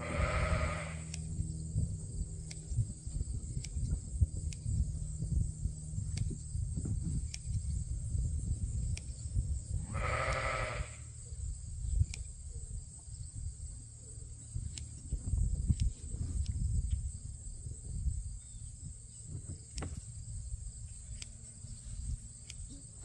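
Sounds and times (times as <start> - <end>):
sheep bleating: 0.0 - 1.1, 9.9 - 11.1
low rumble: 0.0 - 9.9
shears snipping wool: 0.4 - 1.4, 2.1 - 9.5, 14.5 - 16.7, 19.6 - 20.2, 20.8 - 23.0.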